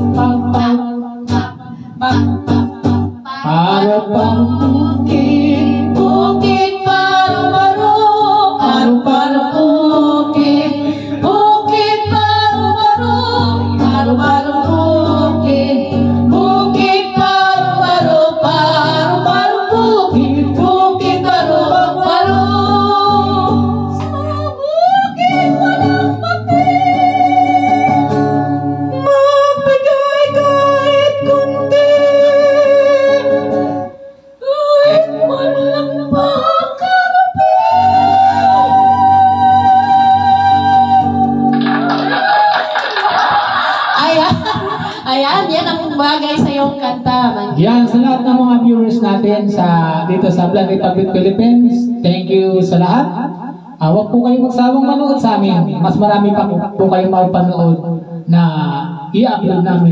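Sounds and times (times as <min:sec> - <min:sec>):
women and man singing: 0:00.0 - 0:28.2, 0:28.9 - 0:41.6
electric guitar: 0:00.0 - 0:54.2.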